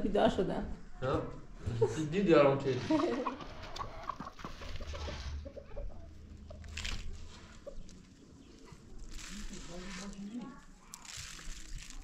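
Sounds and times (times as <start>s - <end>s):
hen clucking: 2.8s - 9.0s.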